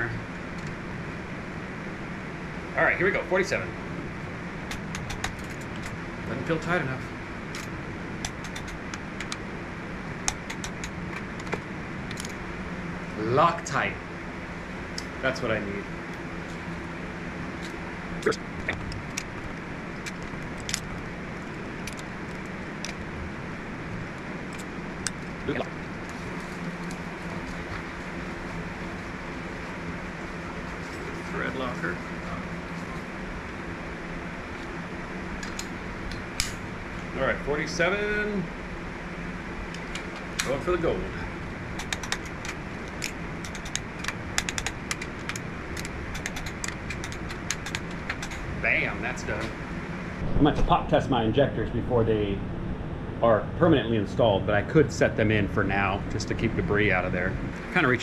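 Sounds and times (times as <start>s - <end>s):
steady fan noise: 0.0s - 58.0s
metallic clicks of hand tools: 41.8s - 48.4s.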